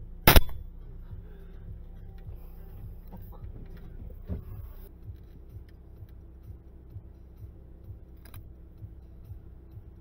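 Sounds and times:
low rumble: 0.0s - 10.0s.

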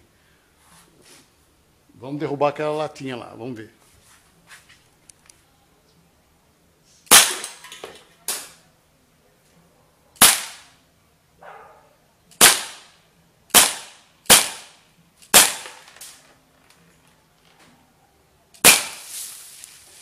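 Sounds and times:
air pistol shots: 7.1s - 7.6s, 10.2s - 10.8s, 12.3s - 16.2s, 18.6s - 19.2s.

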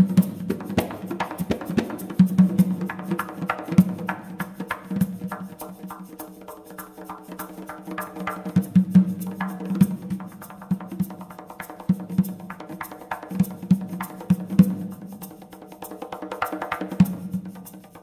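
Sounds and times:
barrel drum played with hands: 0.0s - 6.0s, 6.8s - 17.9s.

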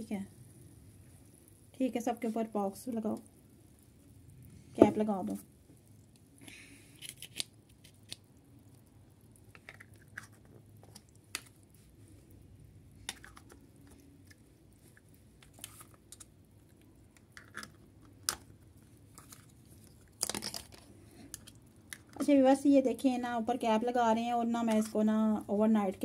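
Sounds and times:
plastic caps clicking: 13.1s - 13.6s, 17.2s - 18.5s, 20.1s - 22.2s
plastic rustling: 14.8s - 16.3s, 17.4s - 22.2s.

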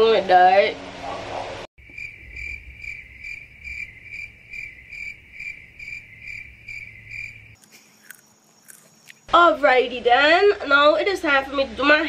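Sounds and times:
cricket chirping: 1.8s - 9.3s.

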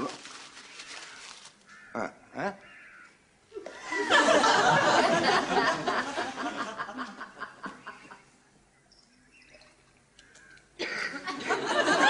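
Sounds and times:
audience laughter: 3.7s - 7.8s, 11.2s - 12.0s.

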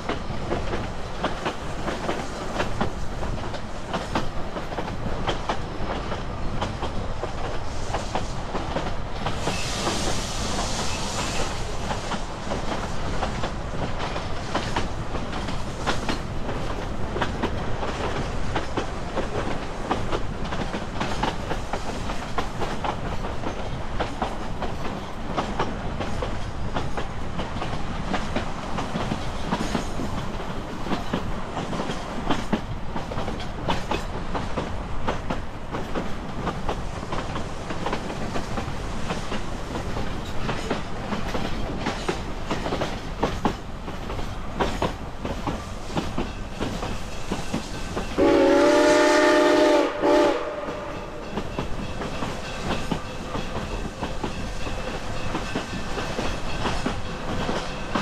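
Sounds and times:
train coach rumbling on rails: 0.0s - 58.0s
steam locomotive whistle: 48.1s - 51.4s.

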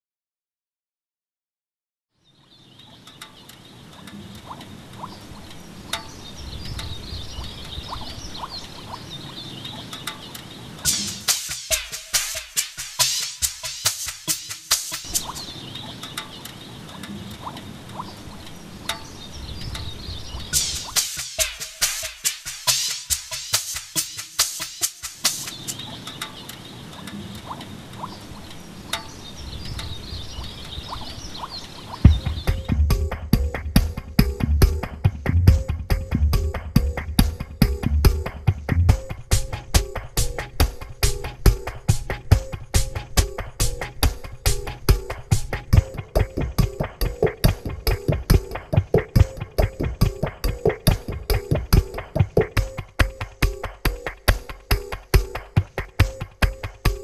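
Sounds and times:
high twittering chirps: 2.4s - 57.0s
low wind rumble: 2.6s - 10.9s, 15.0s - 21.0s, 25.6s - 52.7s
steady hiss: 3.0s - 35.4s, 36.1s - 57.0s.

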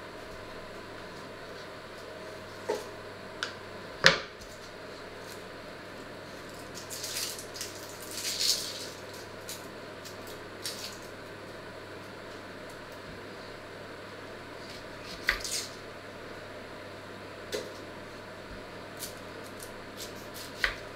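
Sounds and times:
faint steady hum: 0.0s - 20.9s
onion skin rustling and crackling: 4.4s - 13.1s.

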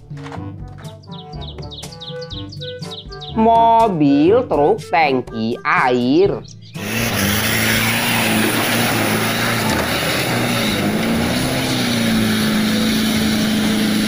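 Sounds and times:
churned mud and water rushing: 6.8s - 14.0s
truck engine running under load: 6.8s - 14.0s.

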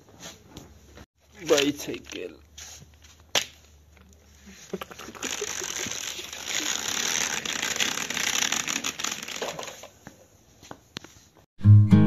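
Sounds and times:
plastic wheels scraping on floor: 5.2s - 10.0s.

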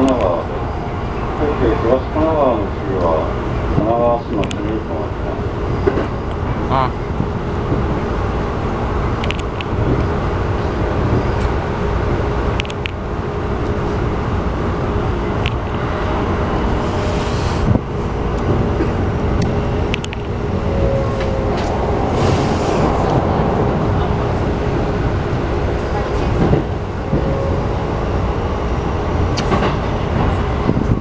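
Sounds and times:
train wheels rumbling on rail: 0.0s - 31.0s
sharp clicks from track: 18.4s - 20.3s, 29.3s - 29.8s.

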